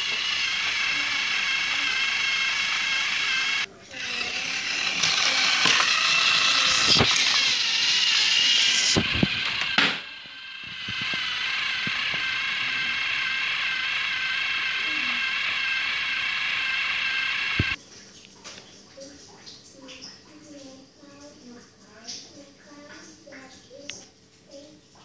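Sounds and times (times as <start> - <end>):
toy train motor whirring: 0.0 - 17.8.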